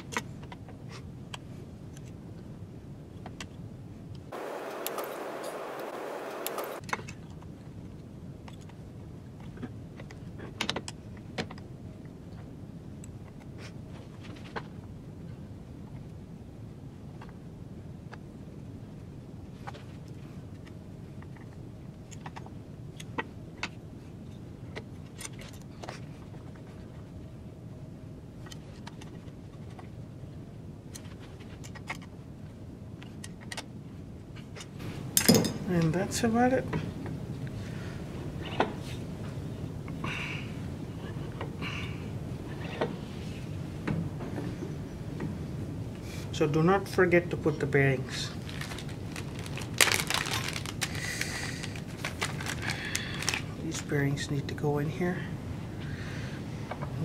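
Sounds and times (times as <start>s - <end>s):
low background hum: 0.0s - 57.0s
steady hiss: 4.3s - 6.8s.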